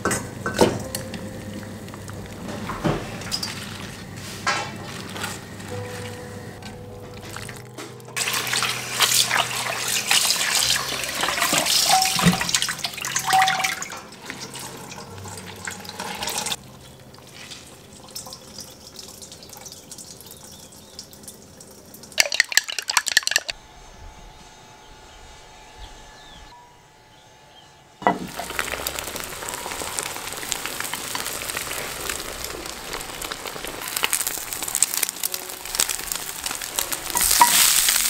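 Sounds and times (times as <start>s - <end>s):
water gushing into colander: 8.2s - 23.5s.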